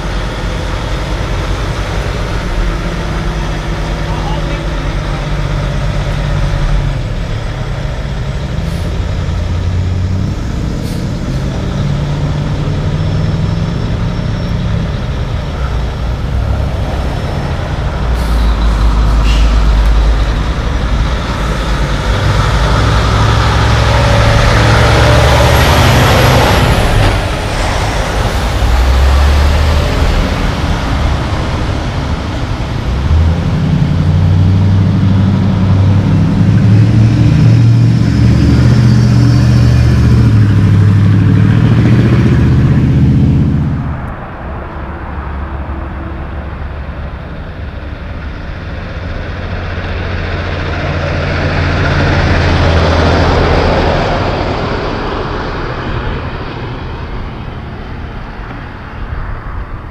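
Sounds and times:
diesel truck engine: 0.0 - 59.9
air brakes hissing: 8.6 - 9.1, 10.7 - 11.5, 18.1 - 19.8.

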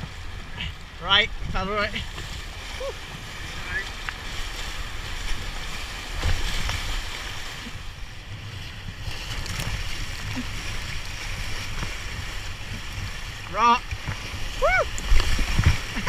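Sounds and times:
whitewater rapids rushing: 0.0 - 8.1, 9.4 - 16.0
paddle splashes: 0.0 - 16.0
wind rumble on microphone: 0.0 - 16.0.

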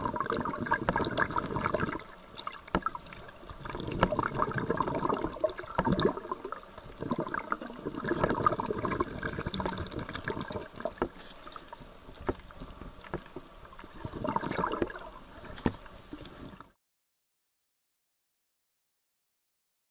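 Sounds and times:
water sloshing and gurgling: 0.0 - 16.8.

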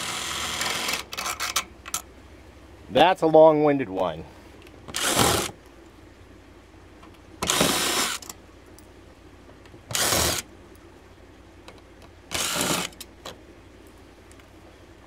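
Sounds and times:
power drill running in bursts: 0.0 - 1.0, 7.4 - 8.2, 9.9 - 10.4, 12.3 - 12.9.

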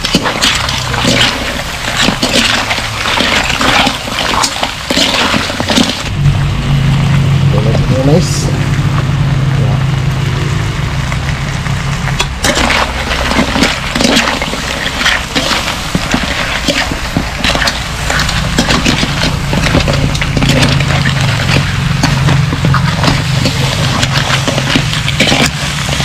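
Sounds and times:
metal utensils scraping a wok: 0.0 - 6.1, 12.2 - 26.0
utensils clacking on crab shells: 0.0 - 6.1, 12.2 - 26.0
steady low hum: 5.2 - 26.0.

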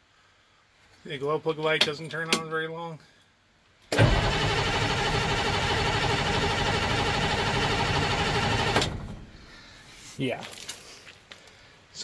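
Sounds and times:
starter cranking diesel engine: 3.9 - 9.2.

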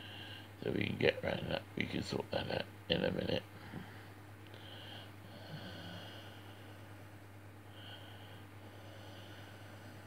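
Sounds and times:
steady low hum: 0.0 - 10.0
man breathing through nose: 3.6 - 7.0, 7.7 - 10.0.

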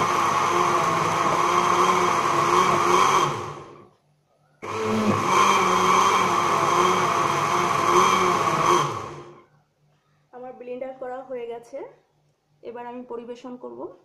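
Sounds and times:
blender running: 0.0 - 3.8, 4.6 - 9.4.

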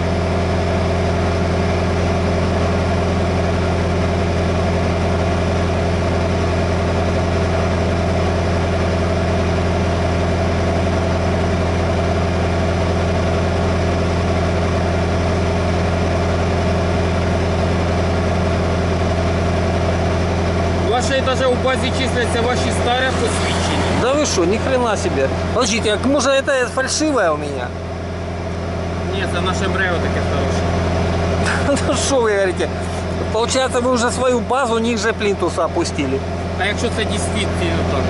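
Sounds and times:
diesel truck engine idling: 0.0 - 38.0.

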